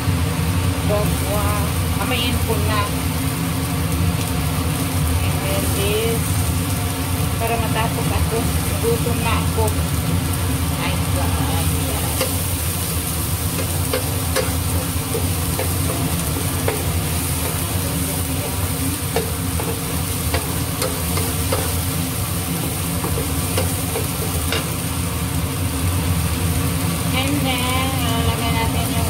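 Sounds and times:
exhaust fan humming: 0.0s - 29.0s
vegetables sauteing in a frying pan: 0.0s - 29.0s
wooden spatula tapping a pan: 13.5s - 17.8s, 18.4s - 21.8s, 22.6s - 24.8s.

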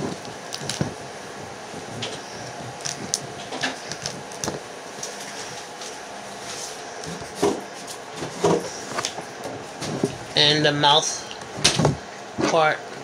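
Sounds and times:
handling noises: 0.0s - 10.3s
crab shell clicks and crackles: 0.2s - 0.9s, 2.4s - 4.6s.

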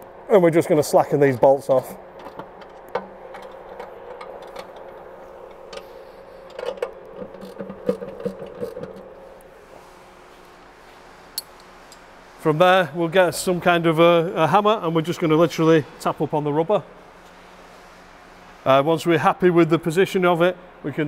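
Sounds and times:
steady hum: 0.0s - 21.0s
ratchet wrench clicking on bolts: 6.6s - 8.9s.

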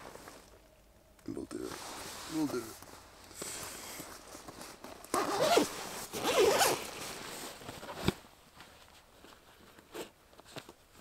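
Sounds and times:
zipper pulled open rasping: 5.1s - 6.8s.

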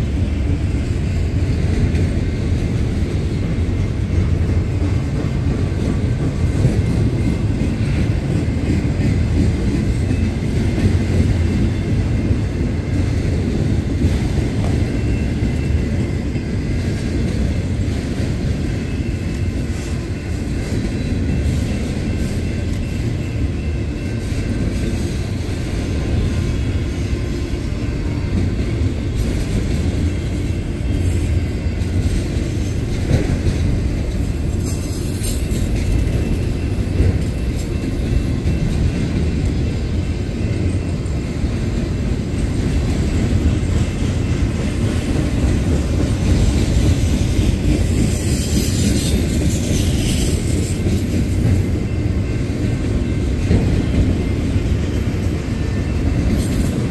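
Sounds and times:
steel wheels rumbling on rail: 0.0s - 56.9s
faint high wheel squeals: 34.5s - 56.9s.

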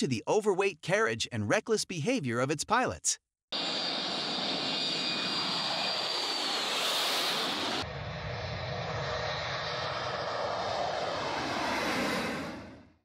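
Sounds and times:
jet engine low rumble: 3.5s - 13.0s
jet engine whine and roar: 3.5s - 13.0s.

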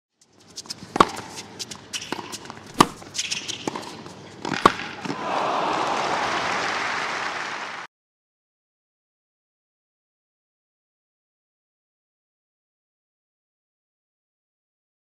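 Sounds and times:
racket striking tennis ball: 2.1s - 5.2s
crowd applause: 5.2s - 7.9s.

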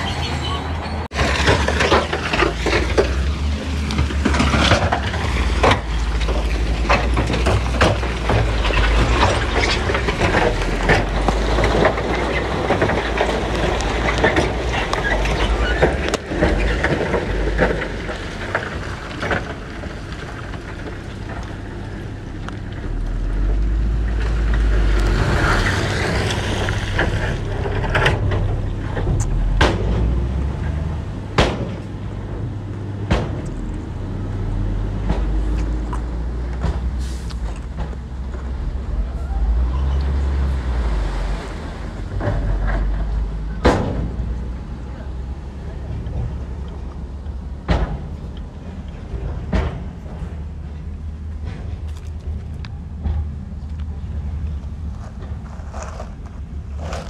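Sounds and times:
diesel machinery running: 0.0s - 57.0s
rocks knocking and clattering: 1.1s - 34.0s, 45.9s - 57.0s.

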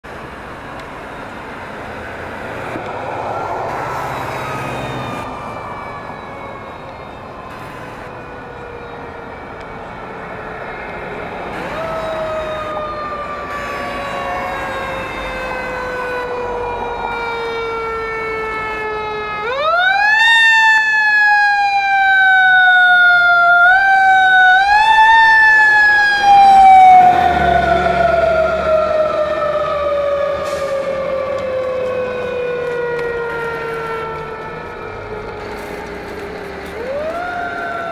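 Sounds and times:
fire engine siren wailing: 0.0s - 37.9s
truck engine rumbling: 0.0s - 37.9s.

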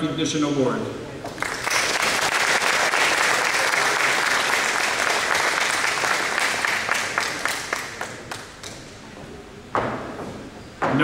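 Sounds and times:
audience applauding: 1.3s - 8.9s.

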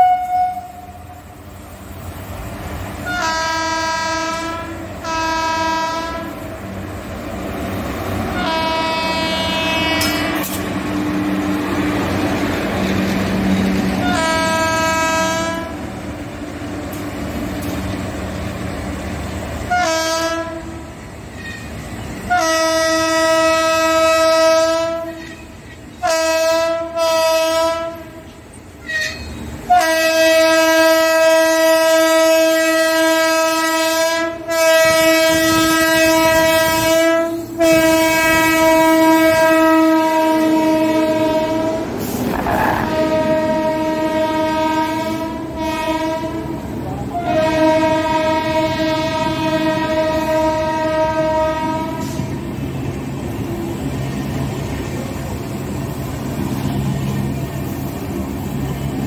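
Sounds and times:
locomotive horn blasts: 0.0s - 1.2s, 3.0s - 6.5s, 8.3s - 10.6s, 14.0s - 15.8s, 19.7s - 20.9s, 22.2s - 25.4s, 26.0s - 28.2s, 28.9s - 52.3s
train coaches rumbling and clattering: 0.0s - 59.0s.

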